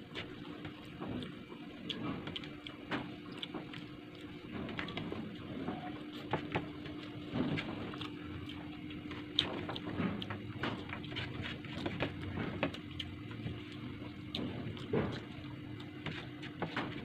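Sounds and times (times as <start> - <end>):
steady low hum: 0.0 - 17.0
chewing and wet mouth clicks: 0.1 - 5.6, 6.4 - 16.5.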